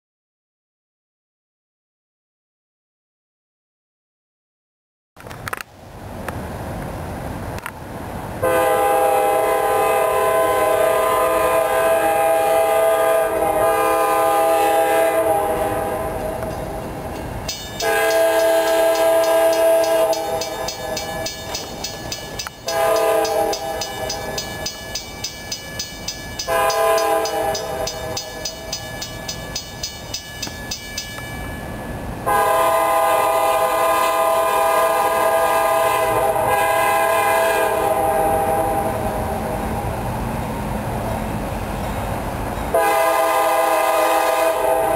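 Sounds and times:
locomotive air horn blasts: 0:08.4 - 0:16.4, 0:17.8 - 0:21.1, 0:22.6 - 0:24.3, 0:26.4 - 0:28.7, 0:32.2 - 0:39.1, 0:42.7 - 0:44.9
crossing bell ringing: 0:16.5 - 0:32.3.

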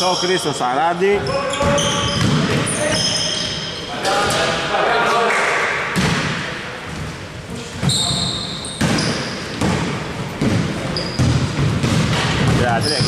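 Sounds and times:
short high squeak: 0:01.6 - 0:03.9
basketball dribbling on court: 0:08.8 - 0:13.0.

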